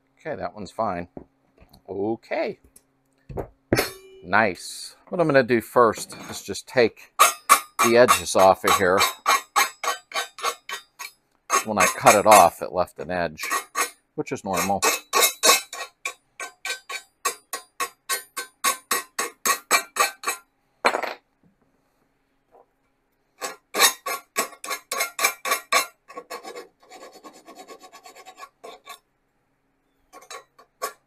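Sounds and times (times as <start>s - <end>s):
hand file rasping on metal: 7.1s - 12.5s, 13.4s - 20.4s, 23.4s - 29.0s, 30.2s - 31.0s.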